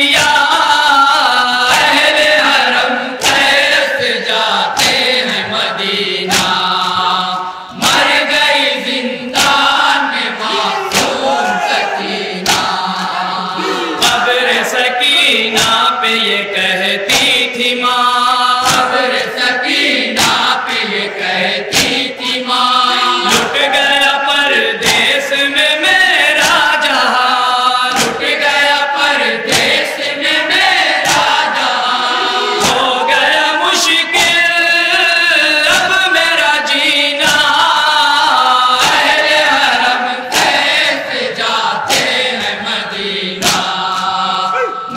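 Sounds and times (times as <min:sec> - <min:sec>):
men chanting together: 0:00.0 - 0:44.9
hand strikes on bare chests: 0:03.2 - 0:03.7, 0:06.3 - 0:07.0, 0:10.9 - 0:11.2, 0:12.4 - 0:12.8, 0:15.5 - 0:15.9, 0:18.6 - 0:19.0, 0:20.2 - 0:20.6, 0:21.7 - 0:22.1, 0:24.8 - 0:25.2, 0:27.9 - 0:28.4, 0:29.5 - 0:29.9, 0:31.0 - 0:31.4, 0:37.2 - 0:37.6, 0:38.8 - 0:39.2, 0:41.8 - 0:42.2, 0:43.4 - 0:44.9.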